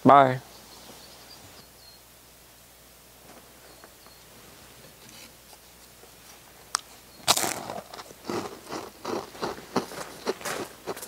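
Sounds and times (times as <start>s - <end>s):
loud crunchy chewing: 5.1s - 11.0s
person biting crisp cookie: 6.7s - 11.0s.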